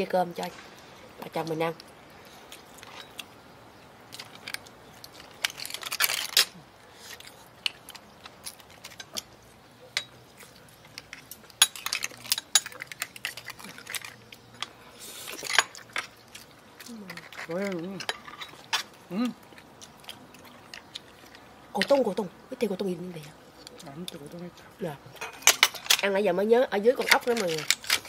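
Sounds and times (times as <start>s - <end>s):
chewing: 4.1s - 22.0s.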